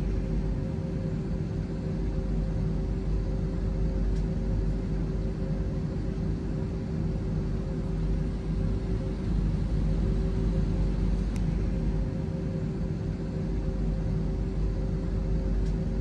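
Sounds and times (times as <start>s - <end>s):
airliner cabin ventilation rush: 0.0s - 16.0s
steady humming tones: 0.0s - 16.0s.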